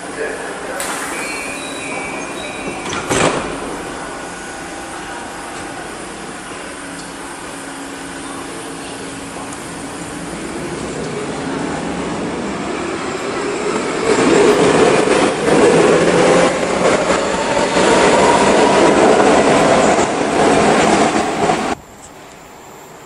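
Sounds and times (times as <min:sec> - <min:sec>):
train motor whine: 0:00.8 - 0:10.0.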